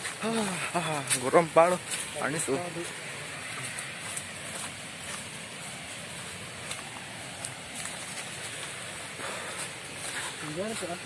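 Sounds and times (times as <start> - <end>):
rushing outdoor noise: 0.0 - 11.0
bamboo rustling and snapping: 3.0 - 11.0.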